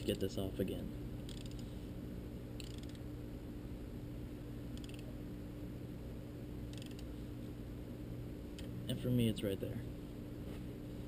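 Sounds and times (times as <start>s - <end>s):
steady low hum: 0.0s - 11.0s
wrench rapid metallic clicks: 1.3s - 1.6s, 2.6s - 3.0s.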